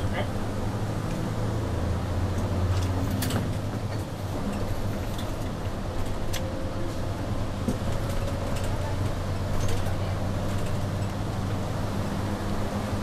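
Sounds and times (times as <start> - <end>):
bus engine droning: 0.0 - 13.0
interior clicks and rattles: 2.3 - 11.7.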